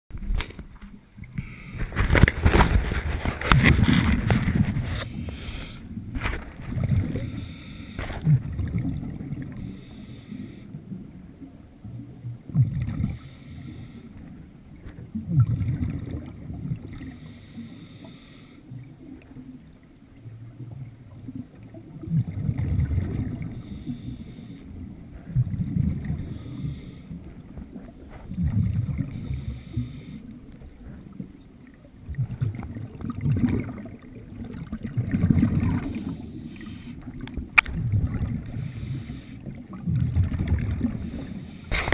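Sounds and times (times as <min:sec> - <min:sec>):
underwater regulator breathing: 0:01.3 - 0:08.5, 0:09.5 - 0:10.7, 0:13.1 - 0:14.4, 0:17.0 - 0:18.7, 0:23.4 - 0:31.2, 0:35.6 - 0:37.3, 0:38.1 - 0:39.6, 0:40.6 - 0:41.9.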